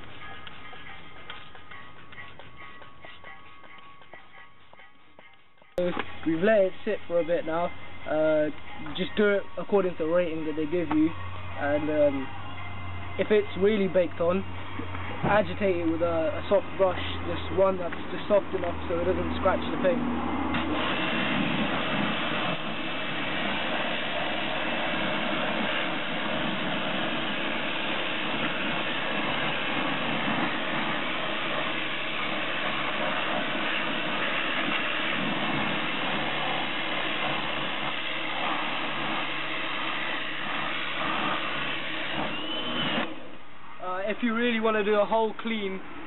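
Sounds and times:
pressure washer spraying water: 0:20.5 - 0:43.2.

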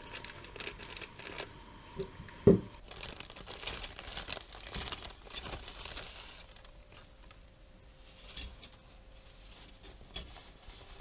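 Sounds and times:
plastic wrapping crinkling: 0:00.0 - 0:07.5.

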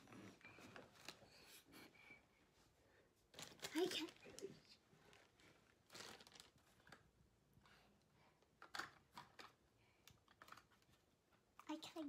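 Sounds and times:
plastic packaging crinkling: 0:03.3 - 0:07.0.

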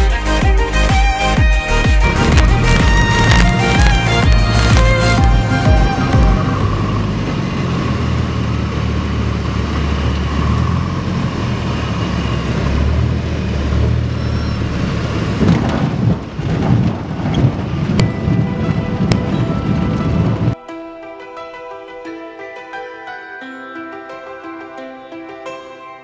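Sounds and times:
plane engine and propeller droning: 0:02.0 - 0:15.4, 0:17.6 - 0:20.6.

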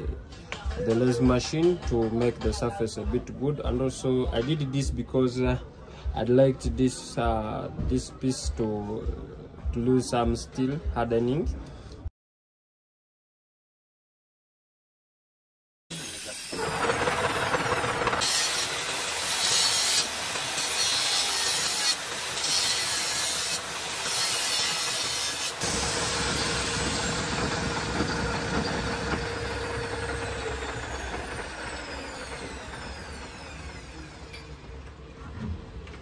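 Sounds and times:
cutting tool scraping and hissing: 0:15.9 - 0:34.5
spindle winding down whine: 0:16.0 - 0:22.5, 0:24.8 - 0:35.0
metal lathe spinning: 0:16.1 - 0:34.9.

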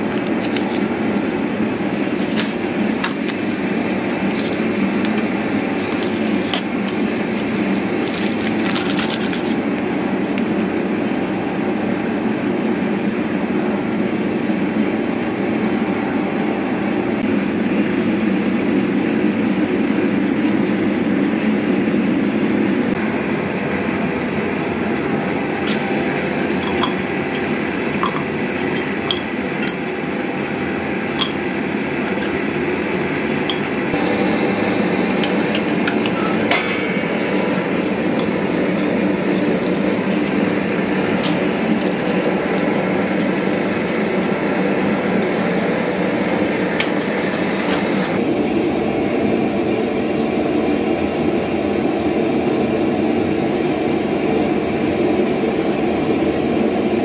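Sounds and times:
furnace burner rushing: 0:00.0 - 0:16.3, 0:22.8 - 0:48.3
metallic clinks of tools: 0:26.6 - 0:30.6.

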